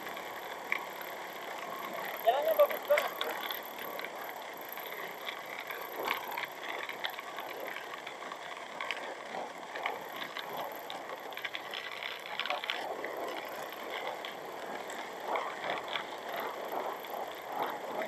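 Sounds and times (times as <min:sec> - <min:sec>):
scooter riding on rough road: 0:00.0 - 0:18.0
small rattles and clicks: 0:00.0 - 0:18.0.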